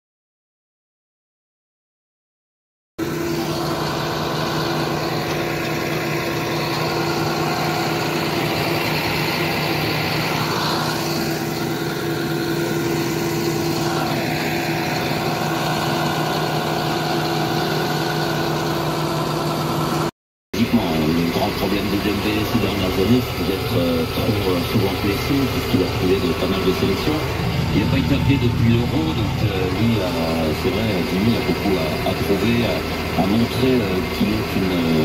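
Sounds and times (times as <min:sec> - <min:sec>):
tractor engine running: 0:03.0 - 0:35.0.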